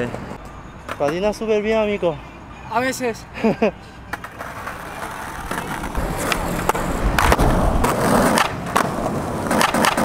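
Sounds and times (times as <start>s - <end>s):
skateboard clacks: 4.1s - 10.0s
skateboard rolling over concrete: 4.1s - 10.0s.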